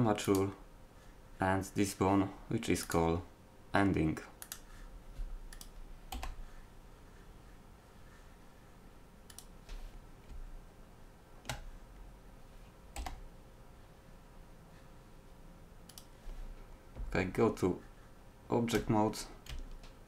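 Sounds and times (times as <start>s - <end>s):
faint steady hum: 0.0s - 20.0s
keyboard and mouse clicks: 4.4s - 4.7s, 5.5s - 6.4s, 9.3s - 10.4s, 11.4s - 11.7s, 12.9s - 13.2s, 15.9s - 16.2s, 18.7s - 20.0s.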